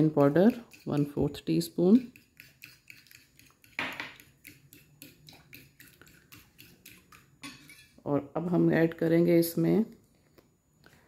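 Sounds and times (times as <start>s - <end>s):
fork clinking and scraping plate: 2.2s - 8.0s.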